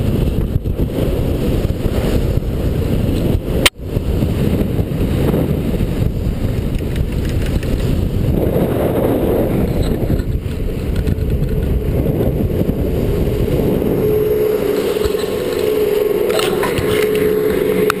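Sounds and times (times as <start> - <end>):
wind rushing over microphone: 0.0 - 18.0
steady hum: 10.6 - 18.0.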